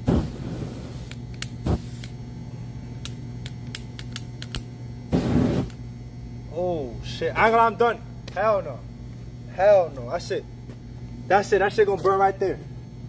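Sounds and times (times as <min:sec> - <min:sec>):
aerosol spray hissing: 0:00.0 - 0:02.1, 0:05.1 - 0:05.8.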